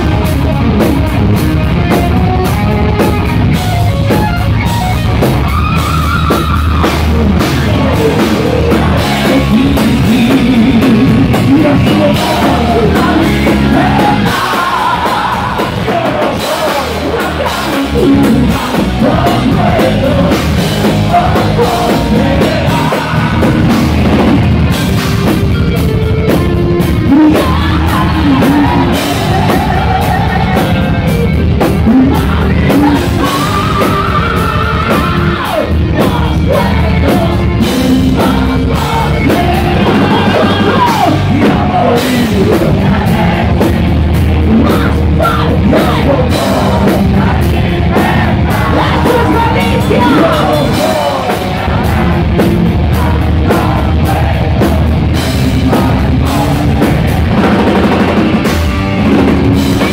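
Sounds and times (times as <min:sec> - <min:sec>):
bass guitar: 0:00.0 - 0:59.9
drum kit: 0:00.0 - 0:59.9
electric guitar: 0:00.0 - 0:59.9
man singing: 0:06.2 - 0:24.4, 0:27.0 - 0:43.7, 0:44.4 - 0:58.2.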